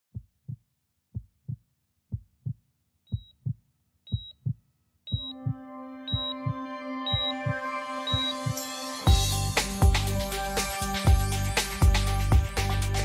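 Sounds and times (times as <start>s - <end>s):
heartbeat thumps: 0.1s - 9.2s
sustained music chords: 5.3s - 13.0s.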